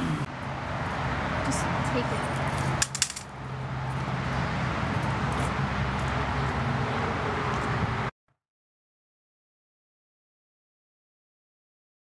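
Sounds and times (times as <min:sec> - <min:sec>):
traffic noise with low hum: 0:00.0 - 0:08.1.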